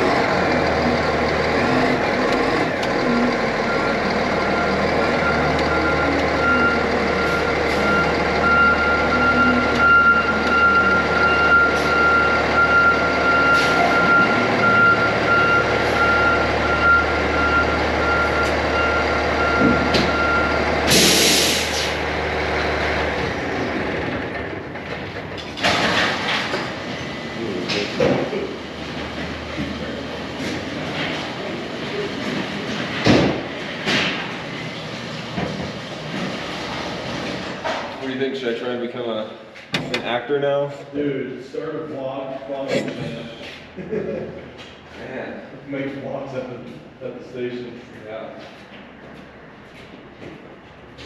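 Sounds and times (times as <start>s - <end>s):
diesel engine running: 0.0s - 38.3s
reverse alarm beeping: 3.6s - 20.7s
air brake hiss: 20.9s - 22.0s.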